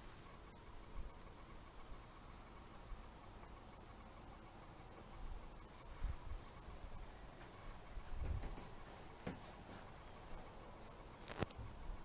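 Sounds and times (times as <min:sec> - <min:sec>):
room hiss: 0:00.0 - 0:12.0
handling thumps and rumble: 0:07.4 - 0:10.5.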